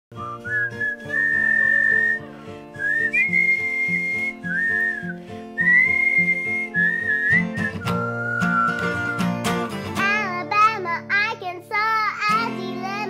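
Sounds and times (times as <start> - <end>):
strummed acoustic guitar: 0.1 - 13.0
girl whistling a tune: 0.2 - 9.2.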